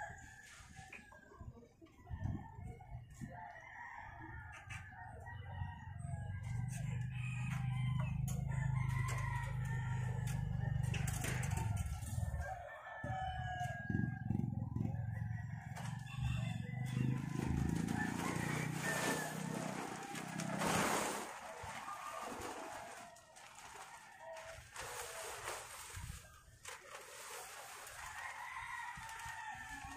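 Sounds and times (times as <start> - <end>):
roosters crowing: 3.6 - 26.2, 27.1 - 29.9
plastic tarpaulin rustling: 17.1 - 29.9.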